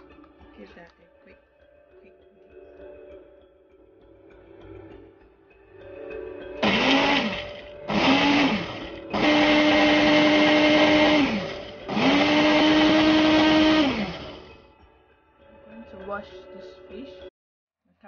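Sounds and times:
blender motor running: 6.6s - 14.6s.

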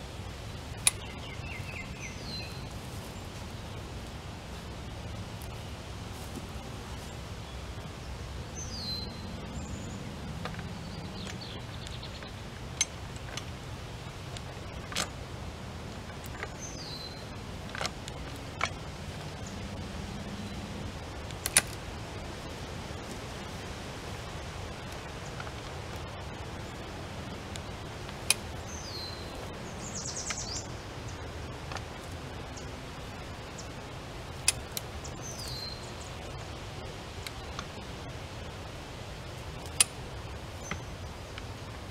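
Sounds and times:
birds chirping and trilling: 0.0s - 41.9s
steady low background noise: 0.0s - 41.9s
metal clicks of farm jack: 10.4s - 13.6s, 21.4s - 21.8s, 34.4s - 34.9s, 39.6s - 40.0s
faint clicks: 23.0s - 38.7s.

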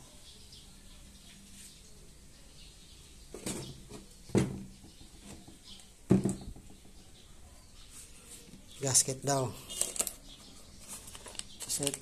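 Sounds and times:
bottles knocking on tabletop: 3.4s - 6.9s
plastic bottles rustling: 8.0s - 12.0s.

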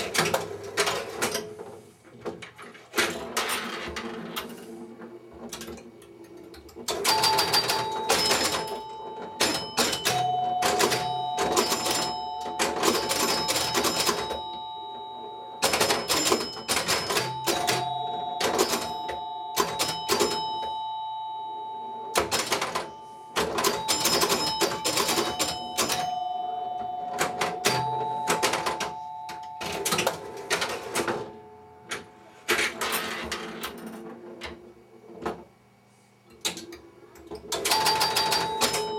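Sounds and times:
pinball machine relays clattering: 0.0s - 34.6s, 36.4s - 38.9s
two-tone door chimes: 6.9s - 32.2s, 37.7s - 38.9s
bell ringing: 7.1s - 32.2s.

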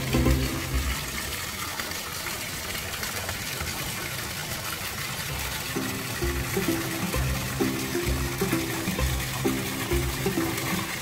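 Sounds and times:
background music with low notes: 0.0s - 1.3s, 5.8s - 11.0s
water flowing into a bath: 0.0s - 11.0s.

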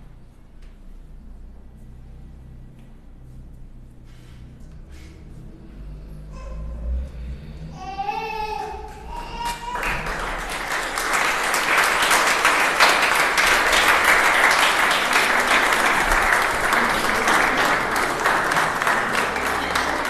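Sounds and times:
audience applauding: 9.0s - 20.0s.

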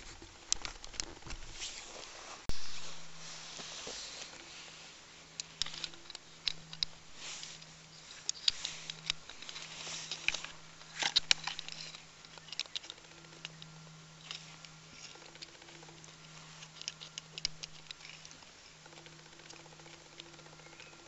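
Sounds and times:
faint low hum: 0.0s - 21.0s
pliers clicking and scraping metal: 5.4s - 18.5s.

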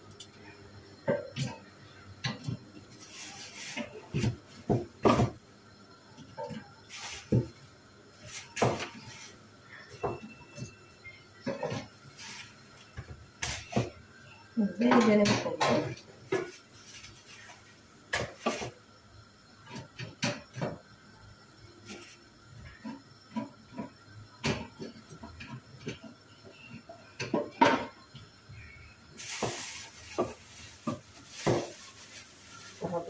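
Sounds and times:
plastic rustling: 2.9s - 4.7s, 29.2s - 33.0s.

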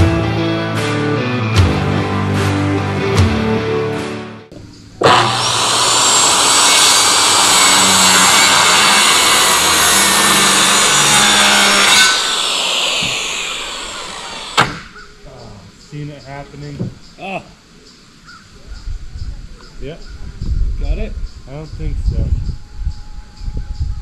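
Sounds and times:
power saw cutting wood: 5.0s - 15.0s.

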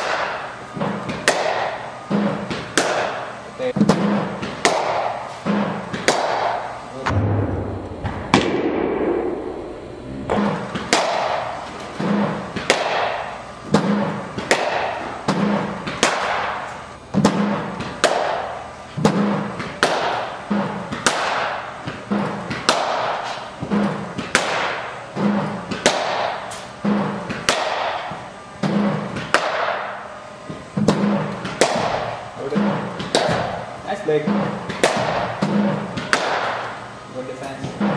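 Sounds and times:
cricket bat striking ball: 1.1s - 1.8s, 4.4s - 5.2s, 5.9s - 6.7s, 10.3s - 11.6s, 12.6s - 16.6s, 17.2s - 19.2s, 20.9s - 21.6s, 22.5s - 23.2s, 24.2s - 26.5s, 27.3s - 28.1s, 28.7s - 30.0s, 30.8s - 32.2s, 34.7s - 36.7s.

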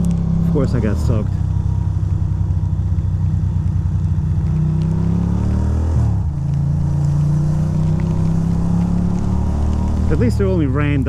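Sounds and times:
motorcycle engine accelerating: 0.0s - 11.0s.

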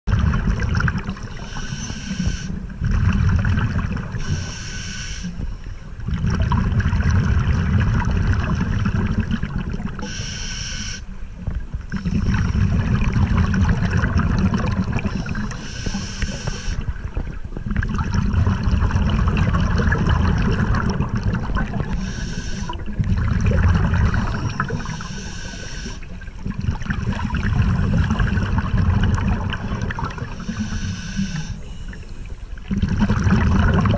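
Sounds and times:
bubbling gurgling exhale: 0.1s - 11.0s, 11.8s - 33.9s
hissing regulator inhale: 1.3s - 2.7s, 4.2s - 5.8s, 10.0s - 11.1s, 15.0s - 16.9s, 21.9s - 22.9s, 24.2s - 26.2s, 30.3s - 32.4s.

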